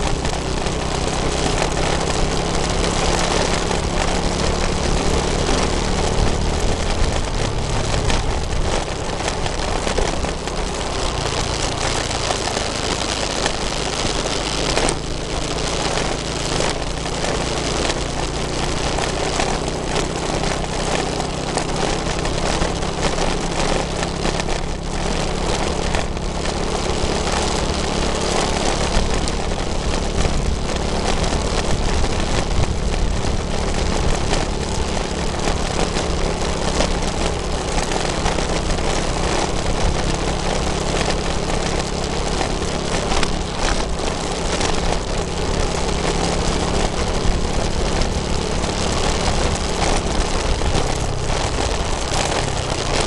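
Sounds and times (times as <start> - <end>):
road noise: 0.0 - 53.0
vehicle engine running steadily: 0.0 - 53.0
wind noise: 0.0 - 53.0.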